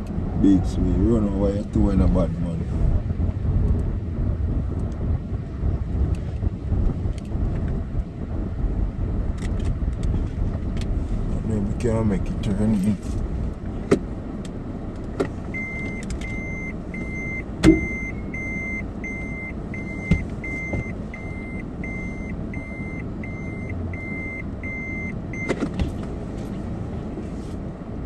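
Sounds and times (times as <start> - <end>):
car cabin hum: 0.0 - 28.0
electronic warning beeps: 15.5 - 25.6
sharp knock: 17.6 - 17.9.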